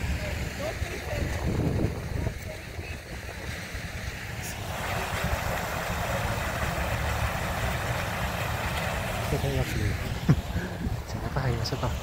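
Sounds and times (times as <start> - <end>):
wind rumble on microphone: 0.0 - 3.7
vehicle engine running: 0.0 - 12.0.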